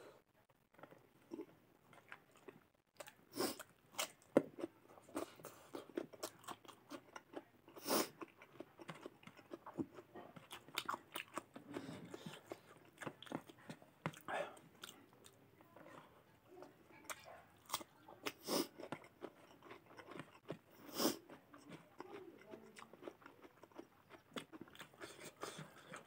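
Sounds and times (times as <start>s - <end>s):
wet chewing: 0.7s - 26.0s.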